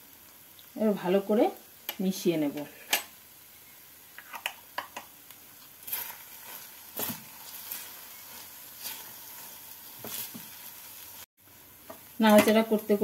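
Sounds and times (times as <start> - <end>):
bread crumbs sizzling in a frying pan: 0.0 - 13.0
spatula scraping a pan: 5.8 - 11.2.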